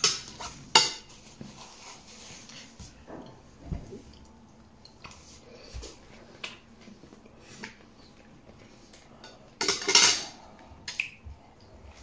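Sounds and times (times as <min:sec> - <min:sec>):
cutlery clicking on plates: 0:09.2 - 0:11.1
dishes scraping clatter: 0:09.6 - 0:10.4.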